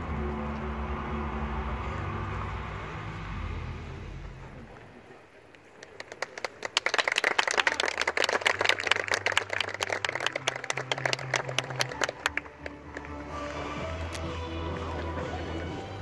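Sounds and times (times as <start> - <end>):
faint music: 0.0 - 6.0, 8.2 - 16.0
audience clapping: 5.7 - 14.1.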